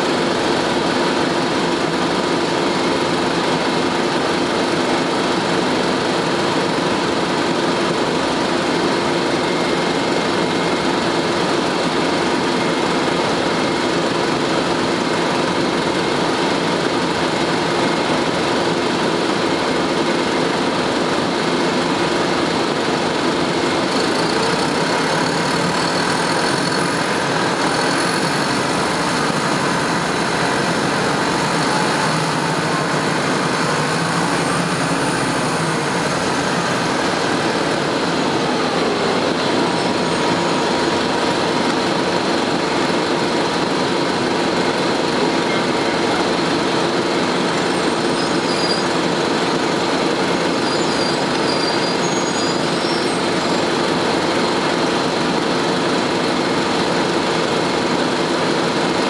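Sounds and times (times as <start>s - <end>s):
bus diesel engine running: 0.0s - 59.0s
air conditioning hum: 21.0s - 48.2s.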